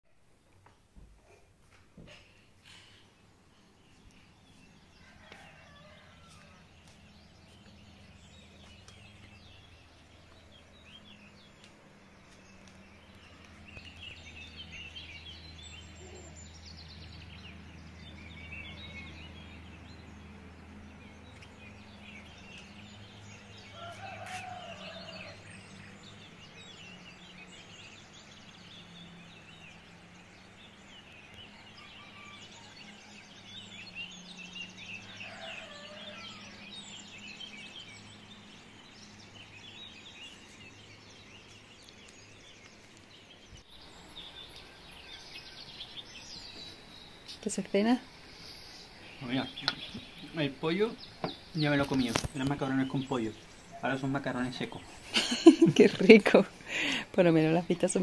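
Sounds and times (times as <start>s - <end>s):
birds chirping and calling: 2.1s - 58.0s.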